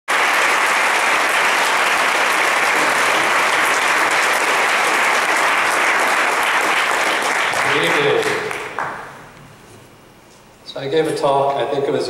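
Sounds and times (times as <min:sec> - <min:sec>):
audience applause: 0:00.1 - 0:09.2.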